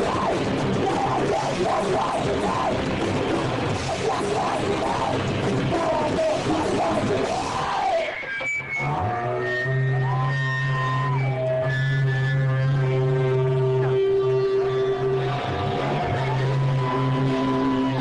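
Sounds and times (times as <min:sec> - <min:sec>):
live rock band playing: 0:00.0 - 0:09.7
low amplifier drone: 0:00.0 - 0:18.0.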